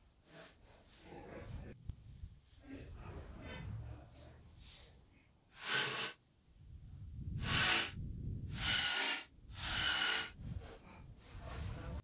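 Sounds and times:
cordless drill driving screws: 0:05.6 - 0:06.2, 0:07.4 - 0:10.4.

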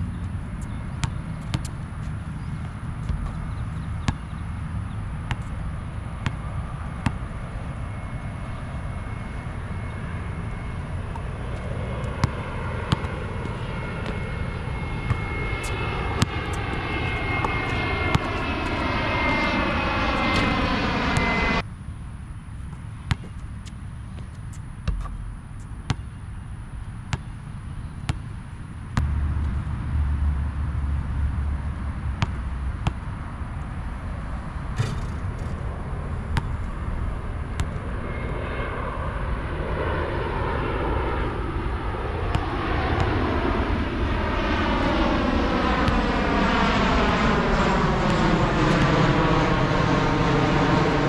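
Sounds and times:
airplane passing low overhead: 0:00.0 - 0:51.0
basketball bouncing: 0:00.6 - 0:05.6, 0:06.2 - 0:06.4, 0:07.0 - 0:07.3, 0:12.1 - 0:14.4, 0:15.1 - 0:18.8, 0:22.7 - 0:26.2, 0:27.1 - 0:27.3, 0:32.2 - 0:33.1, 0:34.7 - 0:35.6, 0:36.3 - 0:36.6.

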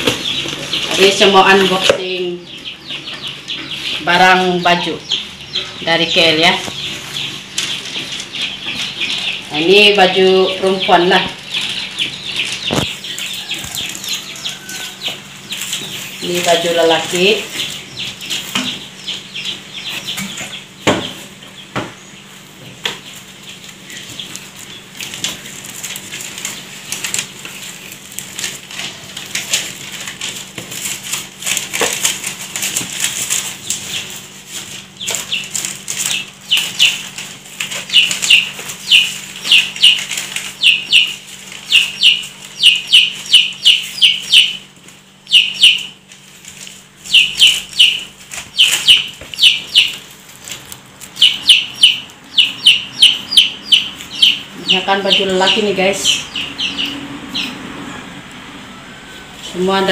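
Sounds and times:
bird peeping: 0:00.0 - 0:59.9
clothes and plastic rustling: 0:23.2 - 0:42.6.

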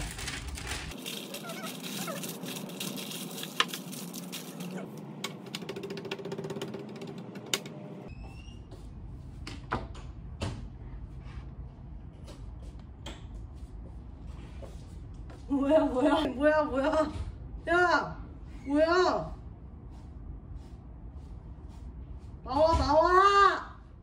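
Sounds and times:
parchment paper crinkling: 0:00.0 - 0:04.9.

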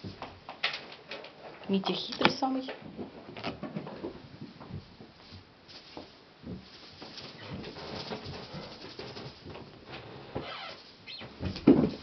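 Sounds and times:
rustling: 0:00.0 - 0:12.0
patter of paws: 0:02.7 - 0:12.0.

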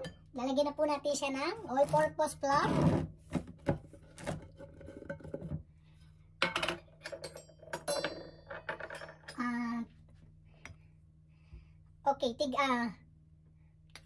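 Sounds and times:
utensils clinking on glass bowl: 0:06.4 - 0:09.4.

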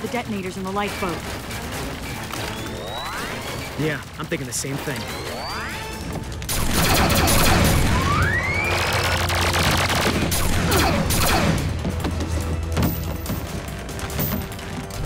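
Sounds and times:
cartoon automatic gunfire: 0:06.5 - 0:11.7.

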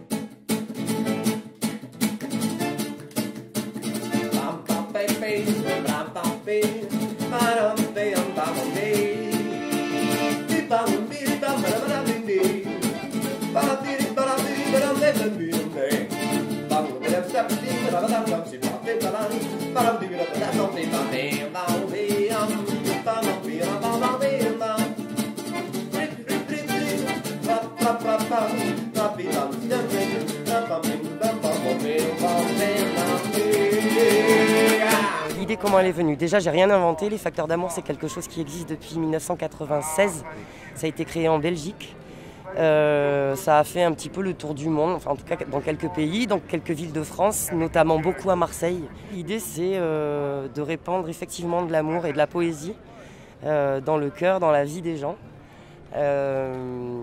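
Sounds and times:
guitar song with singing: 0:00.0 - 0:35.5.

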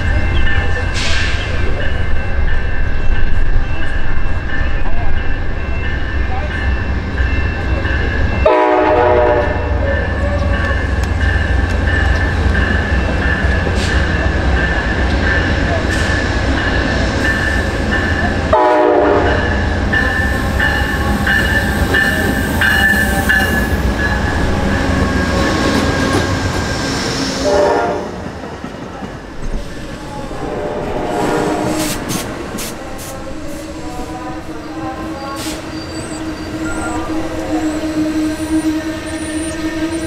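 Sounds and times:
locomotive bell ringing: 0:00.0 - 0:26.5
diesel locomotive engine rumbling: 0:00.0 - 0:40.0
short train horn: 0:08.4 - 0:09.8, 0:18.5 - 0:19.4, 0:27.4 - 0:28.2, 0:30.4 - 0:32.2
train wheels squealing: 0:33.9 - 0:40.0.

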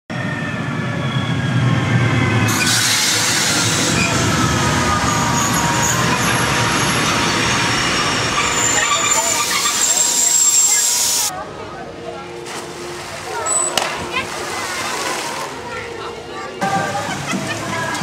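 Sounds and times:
train rolling past: 0:00.1 - 0:12.3
thin squealing tones: 0:03.5 - 0:11.3.

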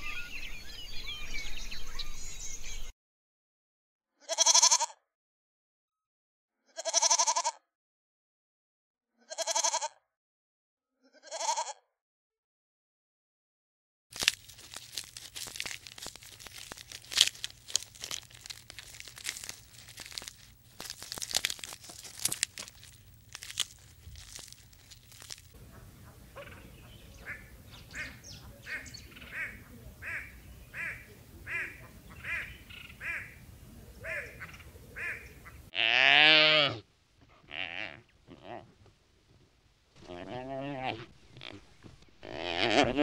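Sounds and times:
crackling clicks: 0:14.1 - 0:25.6
hornbill quacking calls: 0:25.6 - 0:33.4, 0:34.0 - 0:35.8
wildebeest grunting call: 0:34.0 - 0:38.7, 0:40.0 - 0:41.6, 0:42.2 - 0:43.0.

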